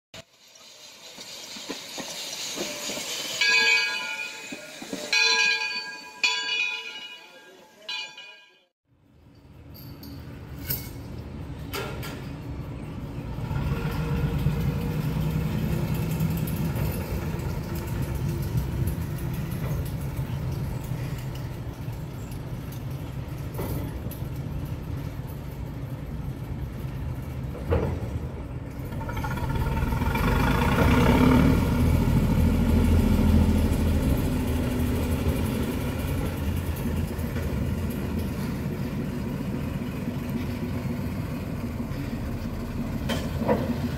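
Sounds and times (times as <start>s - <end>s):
locomotive engine running: 1.0s - 8.5s, 10.2s - 43.9s
sharp metallic clanks: 1.5s - 8.7s.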